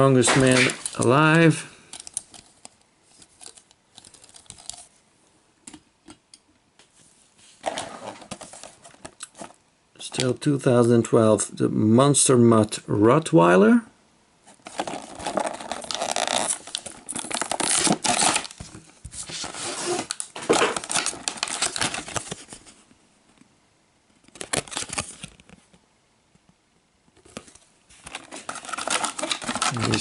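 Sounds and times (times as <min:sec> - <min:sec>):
plastic blister tearing and crinkling: 0:00.2 - 0:04.9, 0:14.6 - 0:22.6, 0:24.2 - 0:25.5, 0:28.0 - 0:30.0.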